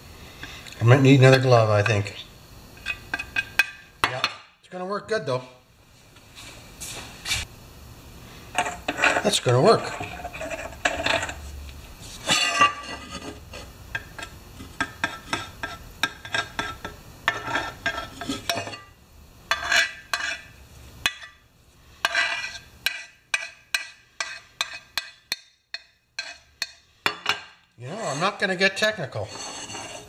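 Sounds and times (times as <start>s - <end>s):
screwdriver scraping metal tank: 8.6s - 11.4s, 12.2s - 18.8s, 22.0s - 23.5s, 28.0s - 28.5s, 29.1s - 30.0s.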